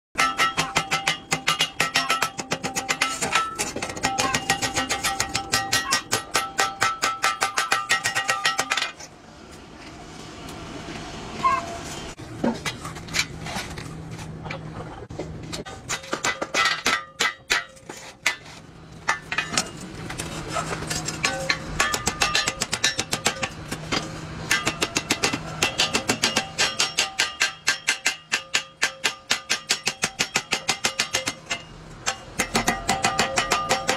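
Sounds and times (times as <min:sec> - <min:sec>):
hammer striking sheet steel: 0:00.2 - 0:09.0, 0:15.6 - 0:33.9.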